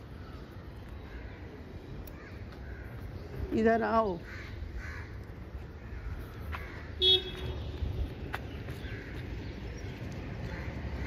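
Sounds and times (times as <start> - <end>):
street traffic rumble: 0.0 - 11.0
vehicle horn toot: 7.0 - 7.8.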